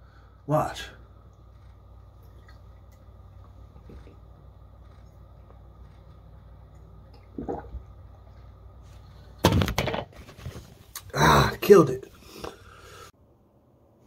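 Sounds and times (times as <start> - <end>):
man gulping tea: 2.1 - 4.2, 6.9 - 8.1.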